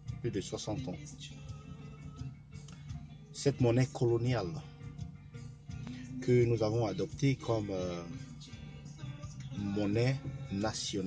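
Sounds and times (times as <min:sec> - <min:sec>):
quiet background music: 0:00.0 - 0:11.0.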